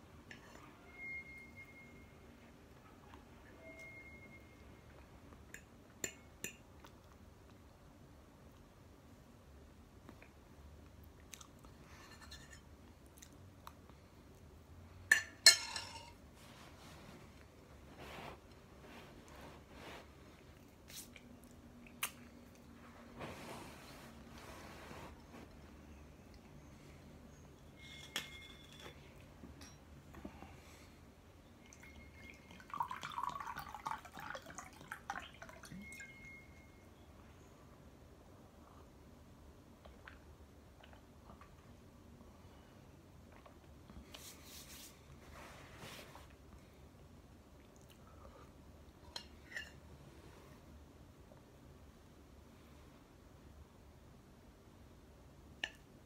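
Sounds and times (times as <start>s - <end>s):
quiet chewing: 11.2s - 11.8s
fork clinking on ceramic plate: 15.1s - 16.2s
glass clinking: 15.1s - 16.2s, 27.6s - 29.9s
water pouring into a glass: 31.7s - 36.4s.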